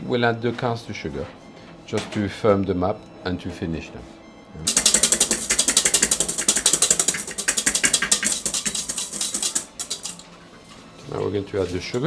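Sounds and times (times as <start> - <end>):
whisk beating in metal bowl: 4.7 - 10.3.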